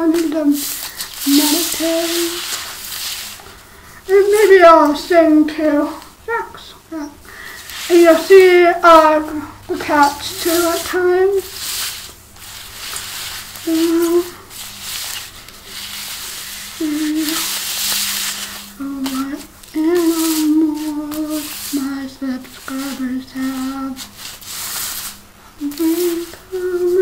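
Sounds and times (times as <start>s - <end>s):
cards sliding on tile floor: 0.1s - 4.0s, 7.4s - 8.5s, 10.0s - 21.8s, 22.4s - 27.0s
woman humming: 13.6s - 14.5s, 16.7s - 17.6s, 18.8s - 24.1s, 25.6s - 27.0s.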